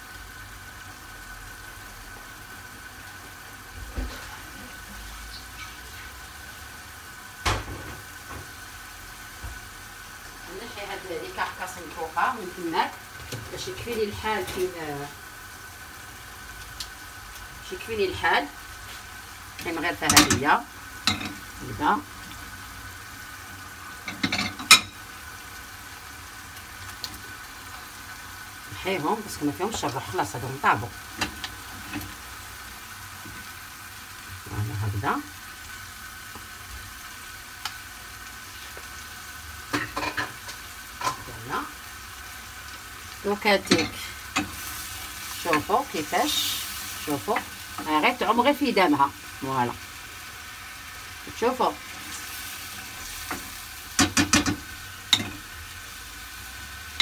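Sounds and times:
sauce bubbling in a frying pan: 0:00.0 - 0:57.0
metal tongs clacking on pan: 0:20.0 - 0:20.4, 0:43.6 - 0:44.5, 0:54.0 - 0:55.4.

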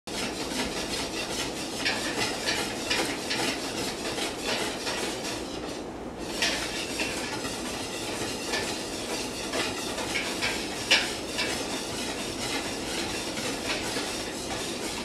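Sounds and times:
whisk scraping a metal pot: 0:00.1 - 0:15.0.

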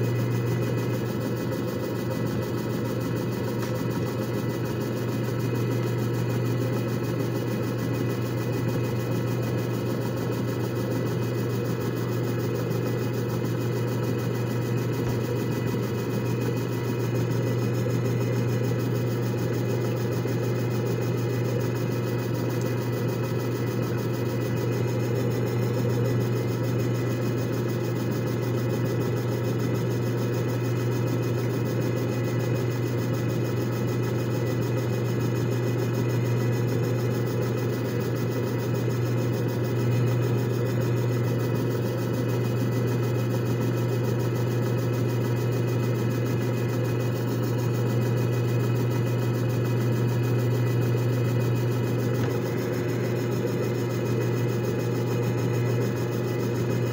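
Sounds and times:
disc spinning whir: 0:00.0 - 0:56.9
motor hum: 0:00.0 - 0:56.9.

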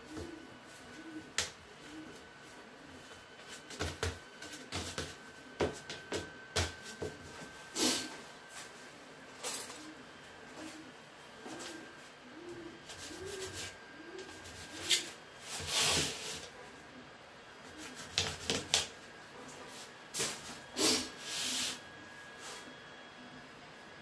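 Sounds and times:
bird cooing softly: 0:00.0 - 0:20.0, 0:20.6 - 0:24.0.

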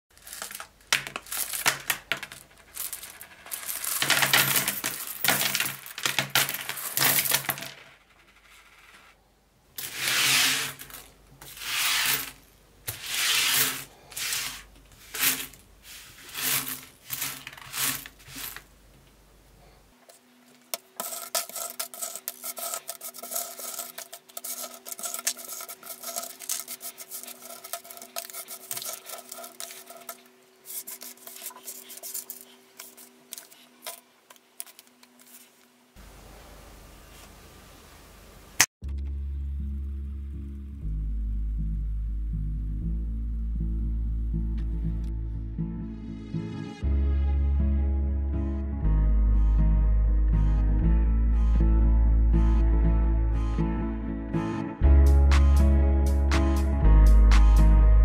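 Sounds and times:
coins clinking on a tabletop: 0:01.3 - 0:09.0, 0:16.3 - 0:18.6.

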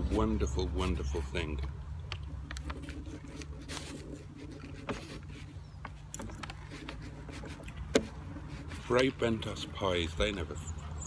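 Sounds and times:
paper rustling: 0:02.3 - 0:09.8.

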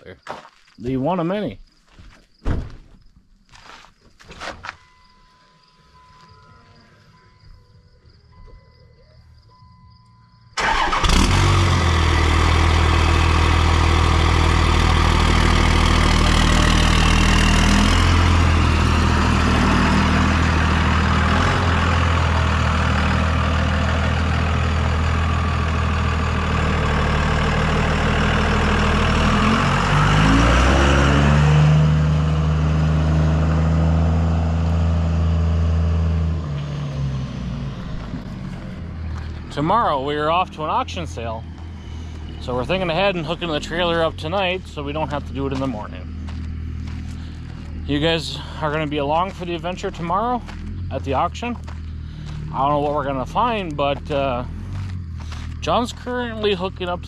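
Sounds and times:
pickup truck engine running: 0:10.6 - 0:36.4, 0:37.5 - 0:57.0.

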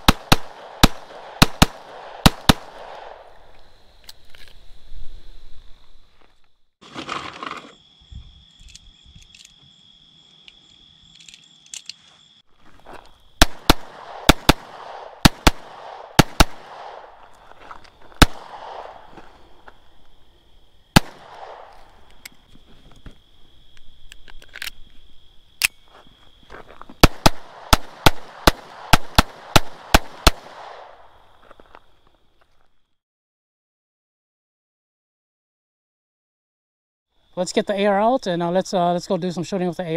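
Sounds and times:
pistol shots: 0:00.0 - 0:03.2, 0:13.4 - 0:17.2, 0:18.2 - 0:19.1, 0:21.0 - 0:21.8, 0:27.0 - 0:31.0
clicks of rounds being loaded: 0:11.1 - 0:12.0, 0:24.0 - 0:24.8.

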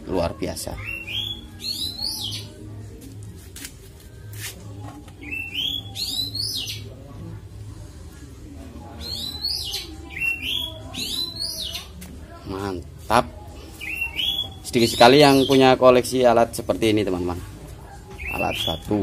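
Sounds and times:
bird chirping: 0:18.2 - 0:19.0.

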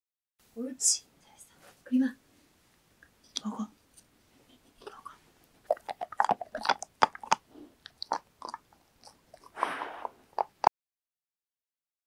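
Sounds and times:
dog crunching a treat: 0:04.8 - 0:10.7.

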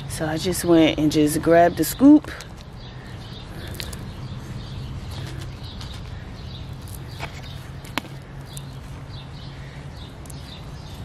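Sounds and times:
birds chirping: 0:00.0 - 0:11.0
hands working soil and mulch: 0:05.0 - 0:09.0.

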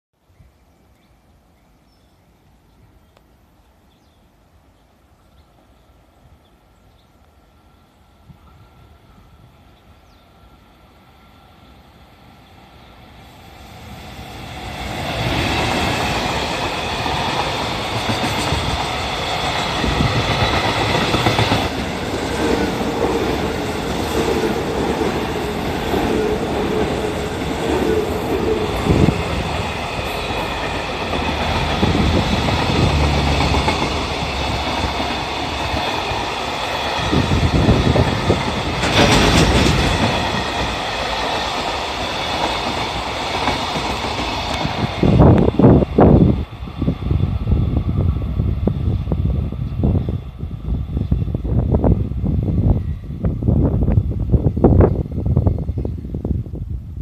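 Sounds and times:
train wheels rumbling on rail: 0:12.3 - 0:57.0
wheels beating over rail joints: 0:28.8 - 0:46.2.

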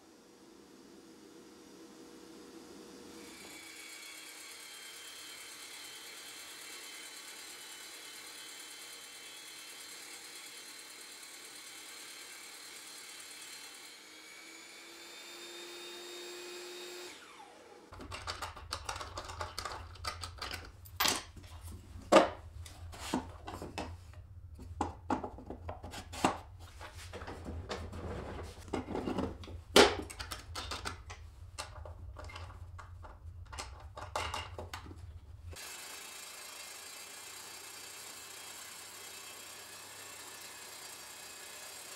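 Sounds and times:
wooden knocks and clatters: 0:18.0 - 0:24.0, 0:24.6 - 0:35.1.

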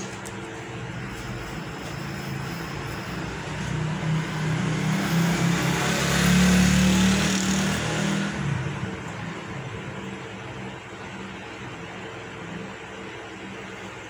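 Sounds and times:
vehicle engine passing by: 0:01.1 - 0:09.5.

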